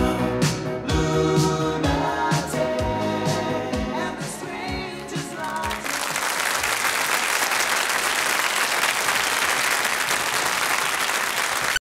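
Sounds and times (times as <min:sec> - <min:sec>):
audience applauding: 0:05.1 - 0:11.8.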